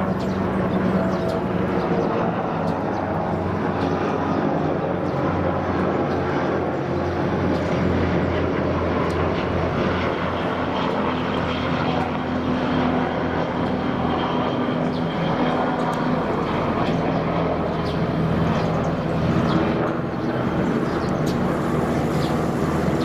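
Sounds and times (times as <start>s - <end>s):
mechanical drone with low hum: 0.0s - 23.0s.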